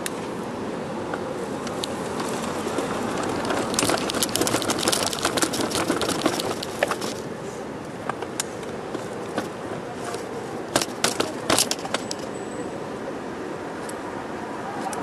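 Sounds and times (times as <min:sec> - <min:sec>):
city street traffic: 0:00.0 - 0:15.0
close crackling and scraping: 0:01.7 - 0:07.3.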